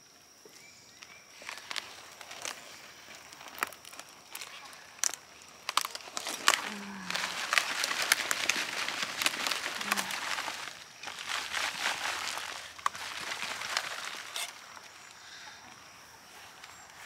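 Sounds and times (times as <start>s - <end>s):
leaves rustling and crinkling: 0.6s - 17.0s
soil crackling and pattering: 0.9s - 17.0s
roots tearing from soil: 3.2s - 15.2s.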